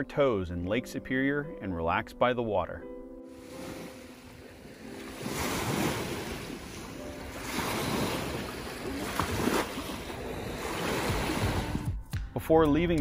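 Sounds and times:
waves washing onto beach: 3.3 - 11.8.

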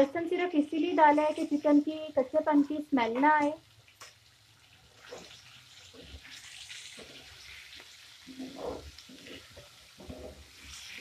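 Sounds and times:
chicken sizzling in a frying pan: 0.0 - 11.0
spatula scraping a pan: 5.0 - 11.0.

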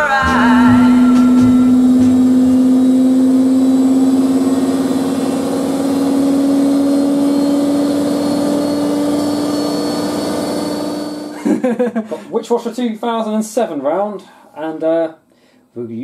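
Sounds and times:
washing machine motor whine: 0.0 - 11.4.

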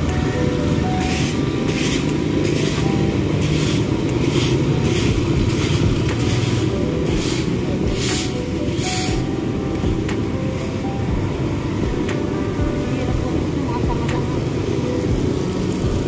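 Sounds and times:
broom sweeping pavement: 0.0 - 11.1.

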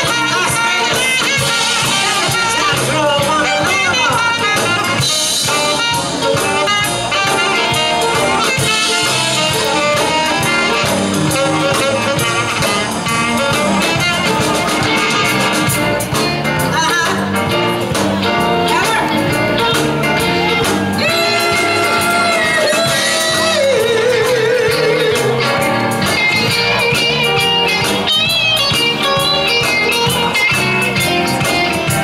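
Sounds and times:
horn section: 0.0 - 32.0
rhythm and blues band playing: 0.0 - 32.0.

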